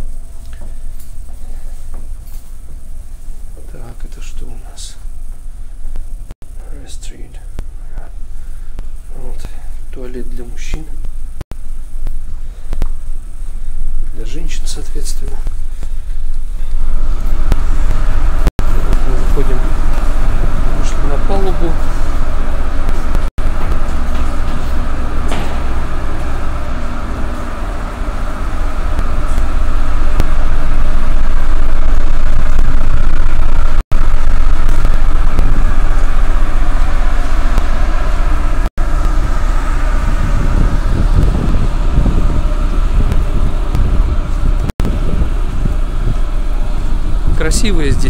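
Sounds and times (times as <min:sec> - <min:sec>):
ship machinery drone: 0:00.0 - 0:48.0
wind buffeting microphone: 0:16.8 - 0:48.0.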